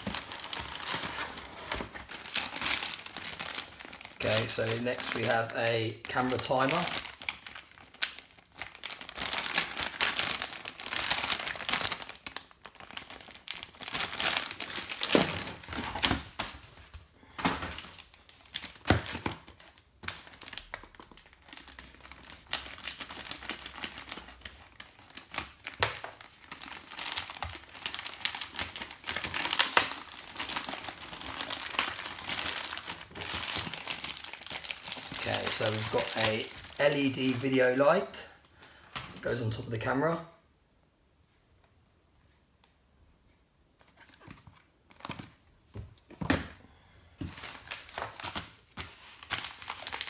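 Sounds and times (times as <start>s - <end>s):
plastic mailer tearing: 0.0s - 16.6s, 17.7s - 37.5s, 47.3s - 50.0s
plastic packaging crinkling: 0.0s - 39.4s, 43.8s - 50.0s.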